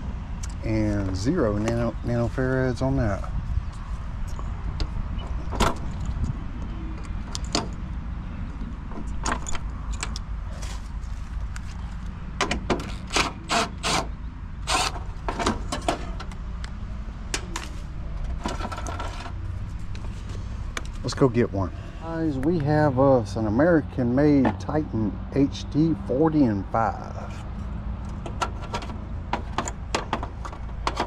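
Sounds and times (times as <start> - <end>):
steady low rumble: 0.0 - 12.4, 14.5 - 25.1.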